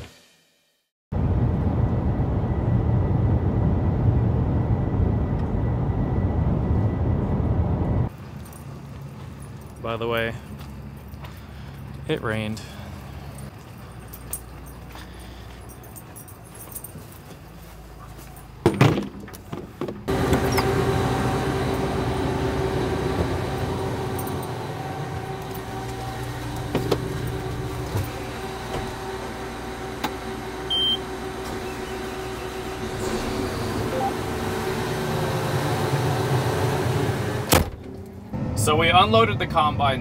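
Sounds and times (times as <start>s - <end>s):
steady machine hum with tones: 20.1s - 39.8s.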